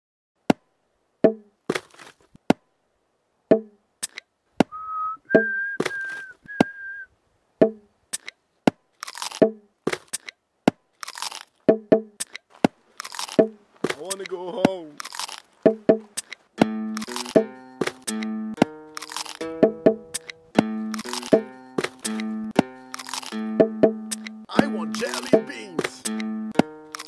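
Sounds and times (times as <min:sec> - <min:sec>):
sharp clicks and pops: 0:04.0 - 0:04.7, 0:07.6 - 0:24.4, 0:25.0 - 0:27.0
whistled notes: 0:04.7 - 0:07.1.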